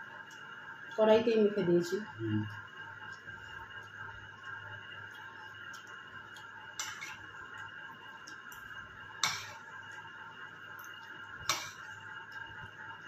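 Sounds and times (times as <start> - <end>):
steady high hum: 0.0 - 13.0.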